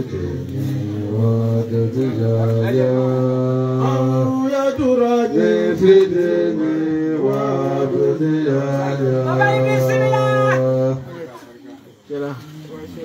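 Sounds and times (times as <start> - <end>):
men chanting together: 0.0 - 11.3.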